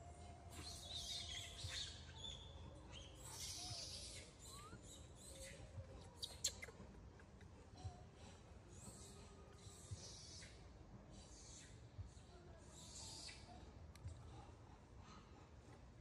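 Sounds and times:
birds chirping: 0.6s - 6.8s.

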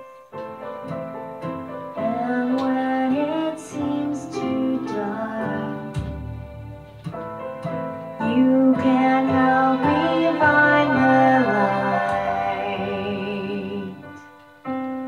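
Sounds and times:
instrumental backing: 0.0s - 15.0s
person singing: 1.9s - 7.0s, 7.7s - 14.4s.

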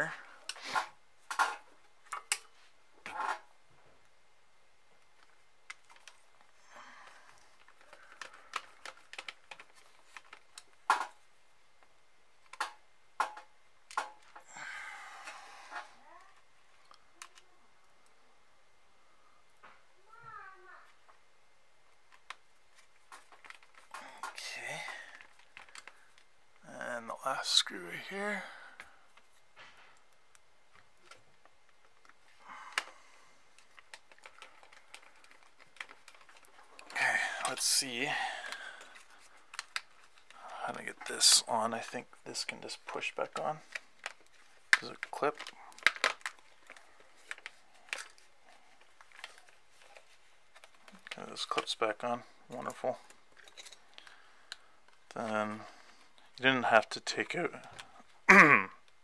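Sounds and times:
headphones being handled: 5.0s - 14.5s, 21.9s - 26.6s, 28.8s - 56.4s
plastic parts clicking: 7.6s - 11.2s, 12.4s - 14.4s, 23.1s - 24.4s, 25.1s - 26.2s, 33.6s - 37.7s, 38.5s - 40.4s, 43.3s - 51.7s.

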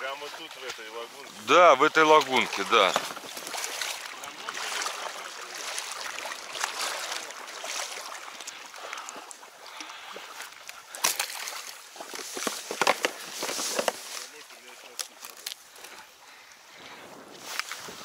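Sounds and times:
oars dipping in water: 0.0s - 18.0s
objects splashing into water: 1.9s - 15.6s.

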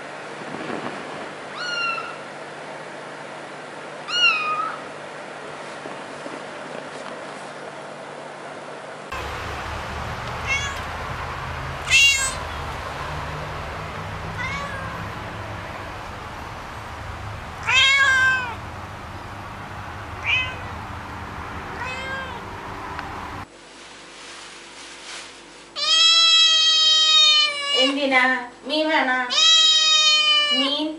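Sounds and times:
low background hum: 0.0s - 30.9s
cat meowing: 1.5s - 2.2s, 4.1s - 4.8s, 10.0s - 16.0s, 16.7s - 18.6s, 20.1s - 20.9s, 21.8s - 22.6s, 25.8s - 27.9s, 29.3s - 30.8s.

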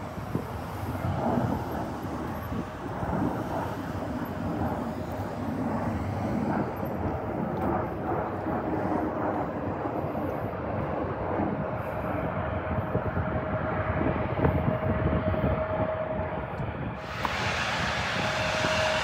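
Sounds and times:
airplane engines rumbling: 0.0s - 19.0s.

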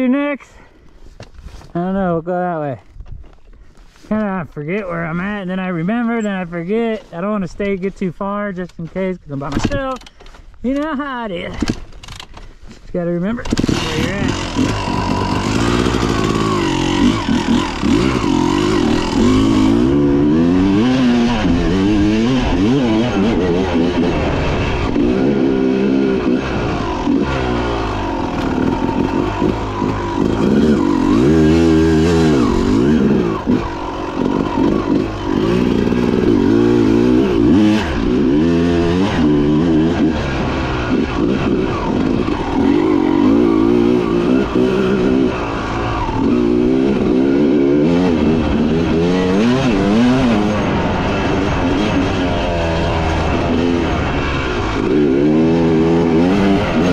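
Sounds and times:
dirt bike engine revving: 13.2s - 56.9s.

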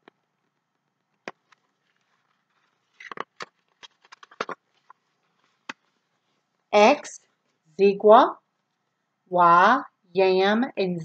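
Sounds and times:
book pages rustling: 0.4s - 6.6s.

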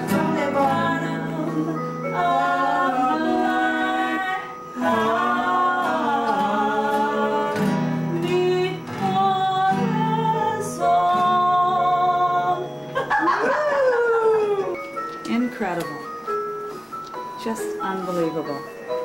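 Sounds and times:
woman singing: 0.0s - 12.9s
classical guitar: 0.0s - 13.1s.

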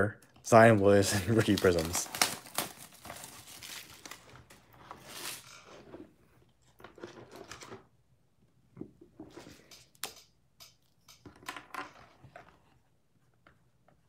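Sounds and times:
cellophane crinkling and tearing: 0.9s - 5.7s.

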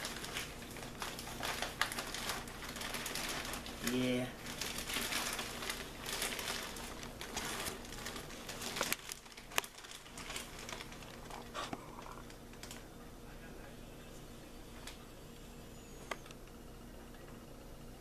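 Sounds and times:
plastic bag crinkling: 0.0s - 12.9s.

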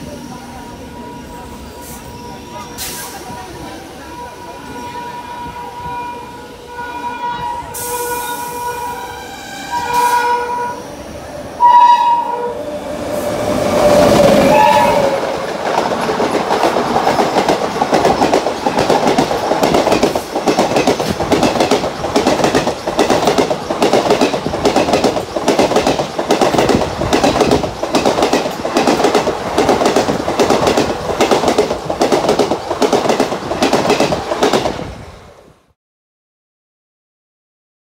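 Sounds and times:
locomotive horn blasts: 4.2s - 10.9s, 11.6s - 12.6s, 14.3s - 15.3s
lower-pitched horn: 4.2s - 11.0s, 11.6s - 15.4s
train wheels clickety-clack: 13.6s - 35.0s.

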